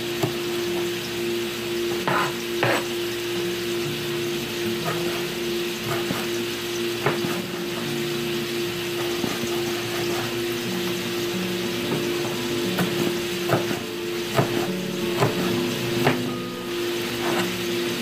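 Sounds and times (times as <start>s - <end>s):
meat sizzling in a frying pan: 0.0s - 18.0s
steady hum: 0.0s - 18.0s.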